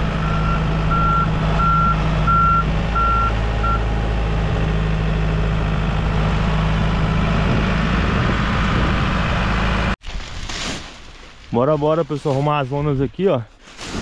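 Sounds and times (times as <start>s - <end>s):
tractor diesel engine running: 0.0s - 10.0s.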